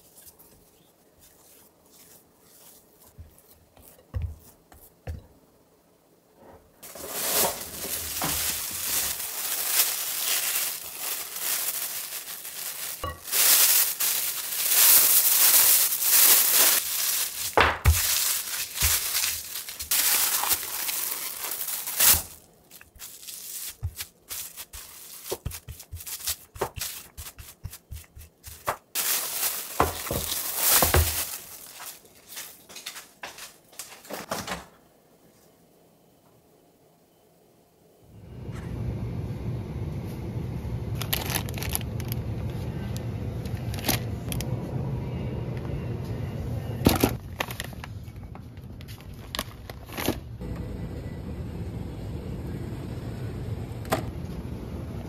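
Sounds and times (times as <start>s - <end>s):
hands patting dough: 0.0s - 5.4s, 13.0s - 33.5s
plastic cling film crinkling: 6.8s - 34.3s, 40.9s - 42.6s, 47.2s - 50.4s.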